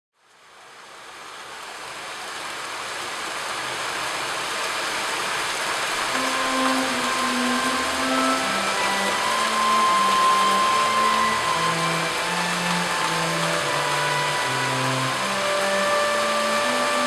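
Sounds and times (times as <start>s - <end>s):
rain hiss: 0.2s - 17.0s
soft held organ notes: 6.2s - 17.0s.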